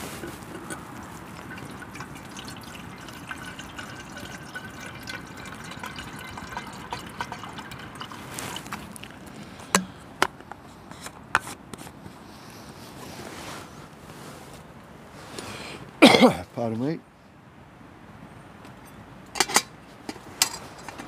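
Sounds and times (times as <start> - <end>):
water trickling and dripping: 0.6 - 9.9.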